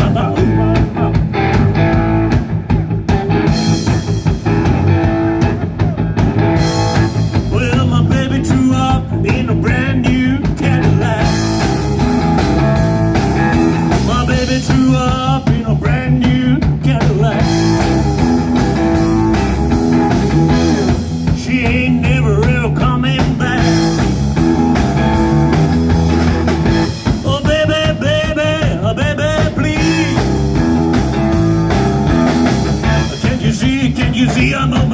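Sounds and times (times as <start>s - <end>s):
man singing: 0.0s - 1.2s, 7.4s - 11.7s, 13.8s - 18.0s, 20.5s - 24.2s, 27.0s - 30.5s, 32.8s - 34.9s
rock band playing: 0.0s - 34.9s.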